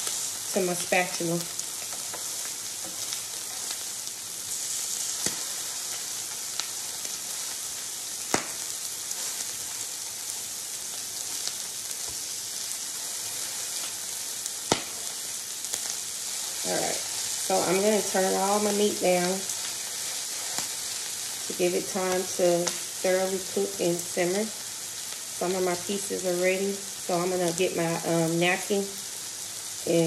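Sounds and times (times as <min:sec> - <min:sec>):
meat sizzling on a griddle: 0:00.0 - 0:30.0.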